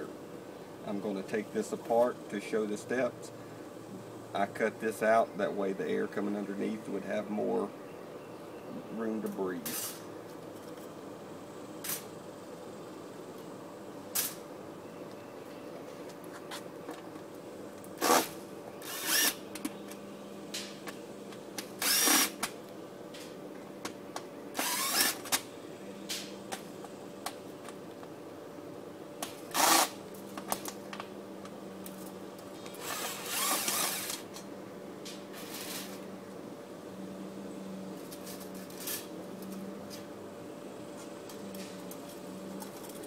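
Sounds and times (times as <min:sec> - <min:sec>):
cordless drill whirring: 0:18.0 - 0:19.4, 0:21.8 - 0:22.4, 0:24.6 - 0:25.3, 0:29.5 - 0:29.9, 0:32.8 - 0:34.2.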